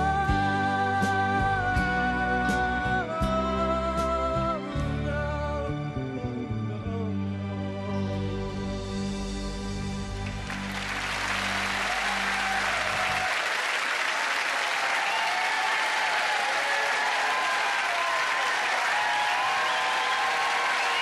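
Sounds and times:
studio audience applauding: 10.2 - 21.0.

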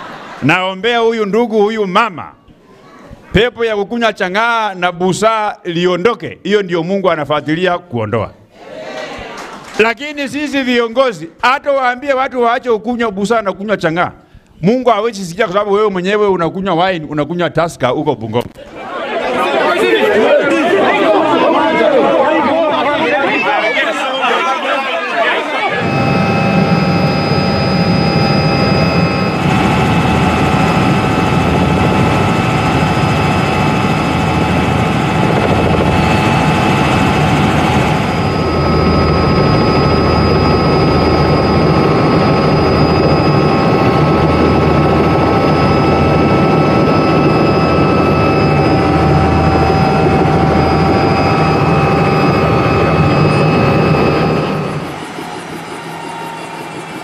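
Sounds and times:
high whining tones: 21.0 - 57.0
helicopter engine and rotor: 25.6 - 57.0.

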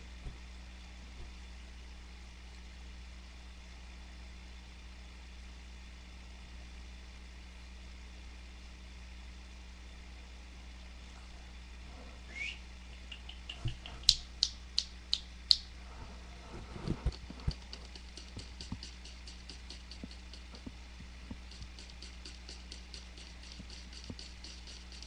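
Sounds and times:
faint fast ticking: 12.3 - 15.6, 17.0 - 25.0
sharp clicks: 12.9 - 15.7, 17.1 - 25.0.

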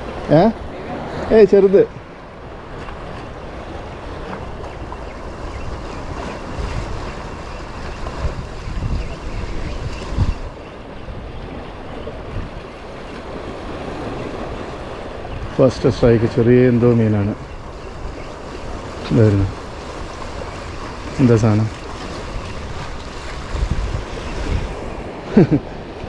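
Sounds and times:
sea waves washing: 0.0 - 26.0
wind buffeting microphone: 0.0 - 26.0.

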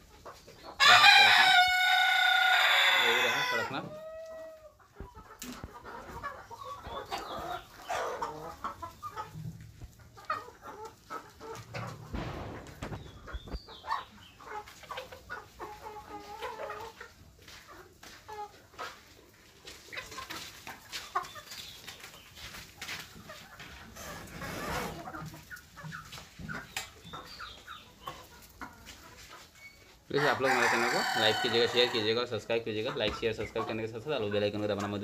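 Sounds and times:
chickens clucking: 0.0 - 35.0
rooster crowing: 30.2 - 32.0.

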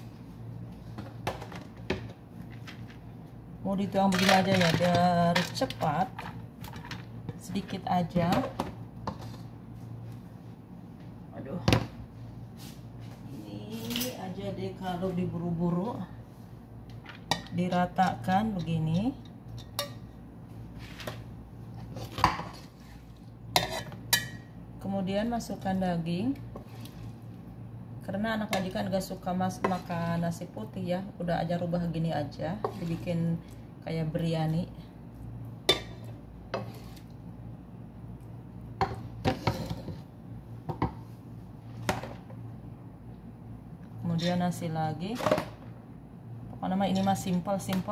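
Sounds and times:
metal spoon scraping pot: 23.6 - 24.3.

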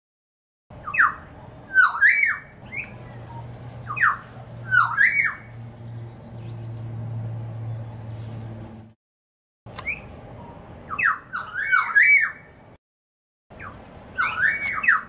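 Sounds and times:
bird gliding calls: 0.8 - 6.4, 9.7 - 12.6, 13.5 - 15.0.

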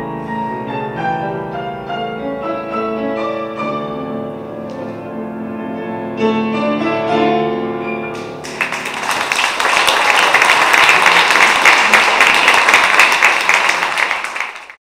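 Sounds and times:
music: 0.0 - 10.4
audience applauding: 8.4 - 14.8.

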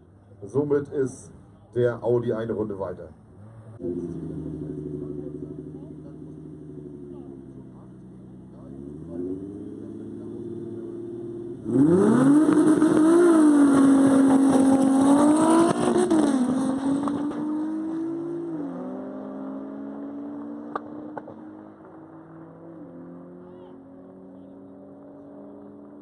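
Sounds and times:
race car engines revving: 0.4 - 26.0
cars launching with gear changes: 3.3 - 23.4.

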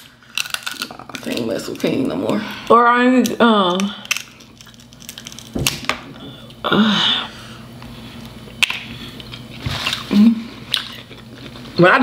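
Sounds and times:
person humming: 6.6 - 7.3.

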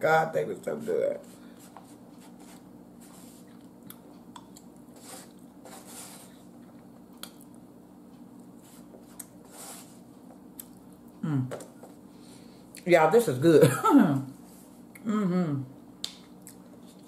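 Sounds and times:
steady low hum: 0.0 - 17.0
soft chewing: 1.2 - 9.4, 10.0 - 12.1, 16.0 - 17.0.

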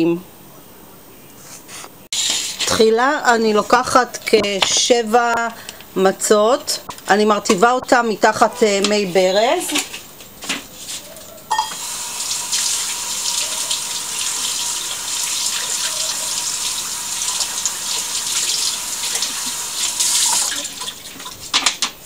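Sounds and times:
tap water running: 11.7 - 21.7.

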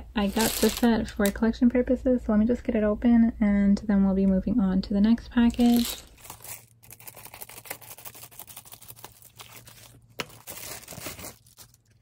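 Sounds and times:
plastic wrap crackling: 5.5 - 12.0.

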